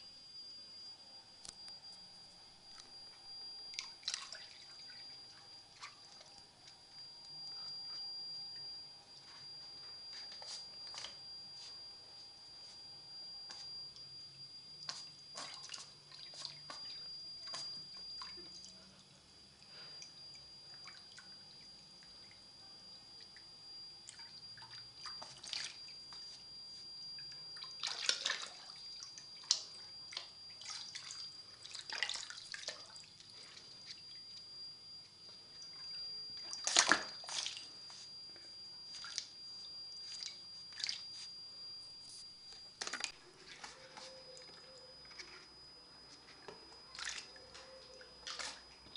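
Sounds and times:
water splashing and dripping: 0:03.7 - 0:05.0, 0:27.6 - 0:33.0, 0:36.6 - 0:37.6, 0:46.9 - 0:47.6.

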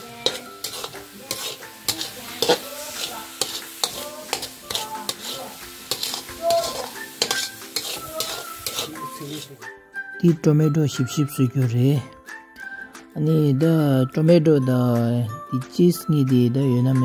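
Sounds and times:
metal spoon scraping a pan: 0:00.0 - 0:09.6
frying sizzle: 0:00.0 - 0:09.7.

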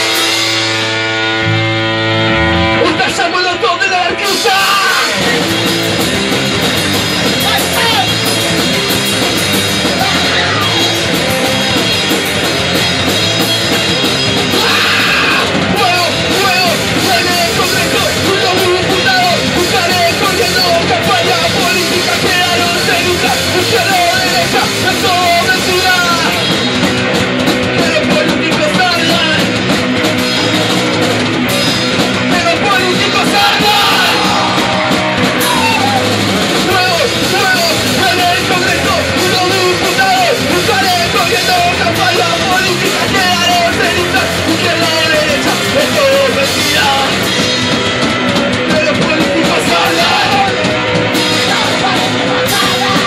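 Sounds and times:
punk rock band playing live: 0:00.0 - 0:53.0
shouted vocals: 0:02.8 - 0:05.5, 0:07.4 - 0:08.3, 0:09.8 - 0:11.2, 0:14.4 - 0:26.4, 0:32.3 - 0:47.3, 0:48.5 - 0:53.0.

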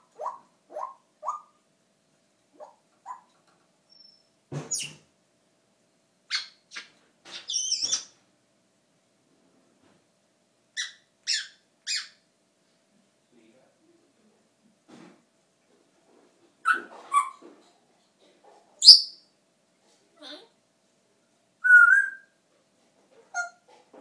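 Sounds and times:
parrot calls: 0:00.0 - 0:01.6, 0:02.6 - 0:03.3, 0:06.3 - 0:08.2, 0:10.8 - 0:12.2, 0:16.6 - 0:17.5, 0:21.6 - 0:22.3, 0:23.3 - 0:23.6.

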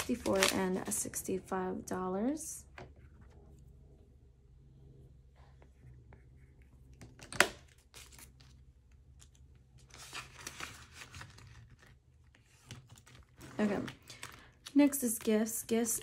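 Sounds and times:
banknotes and envelopes rustling: 0:00.0 - 0:01.2, 0:07.7 - 0:16.0.

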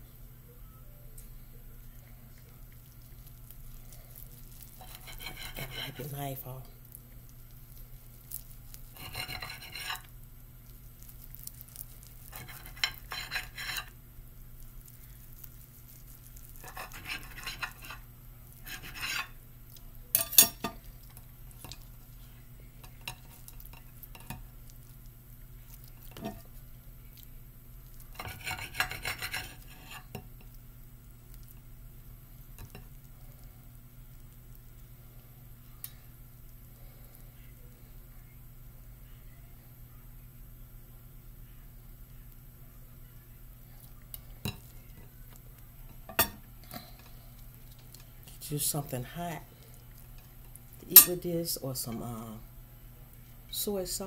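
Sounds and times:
blade scraping and clicking on plate: 0:04.7 - 0:06.1, 0:08.9 - 0:10.1, 0:12.2 - 0:14.0, 0:16.6 - 0:18.0, 0:18.6 - 0:19.4, 0:28.2 - 0:30.5
knife sawing through sushi roll: 0:04.8 - 0:06.2, 0:08.9 - 0:10.0, 0:12.4 - 0:13.9, 0:16.6 - 0:18.0, 0:18.6 - 0:19.3, 0:28.2 - 0:30.0.

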